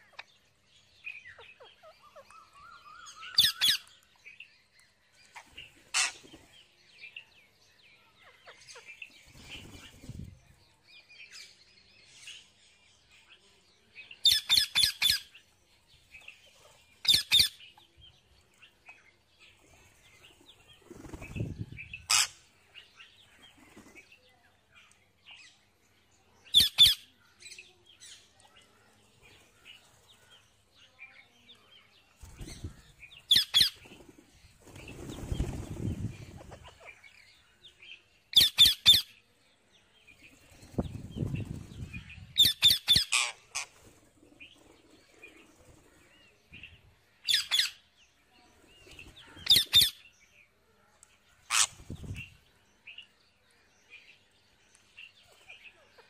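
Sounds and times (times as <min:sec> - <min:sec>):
parakeets screeching: 0:05.9 - 0:06.2, 0:22.0 - 0:22.4, 0:42.4 - 0:43.8, 0:51.5 - 0:51.8
wings flapping: 0:09.3 - 0:10.3, 0:20.7 - 0:21.7, 0:33.6 - 0:36.8.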